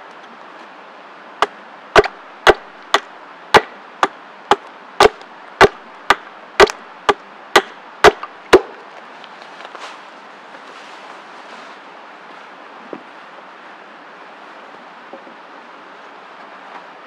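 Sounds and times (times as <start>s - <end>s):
hatchet chopping wooden pole: 1.4s - 8.8s.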